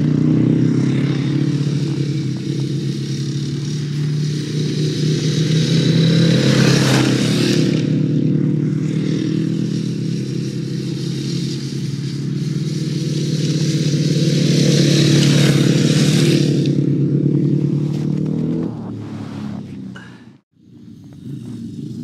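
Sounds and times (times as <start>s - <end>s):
motorcycle engine running hard: 0.0s - 22.0s
ice spray hiss: 1.7s - 7.9s, 9.2s - 16.7s.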